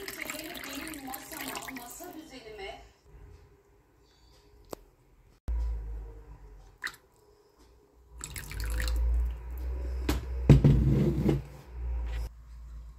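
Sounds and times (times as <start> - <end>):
liquid dripping and splashing: 0.0 - 2.2, 6.8 - 7.1, 8.2 - 9.4.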